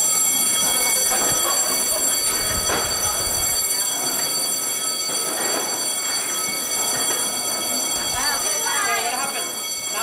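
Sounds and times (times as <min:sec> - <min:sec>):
faint murmuring voices: 0:00.1 - 0:06.1.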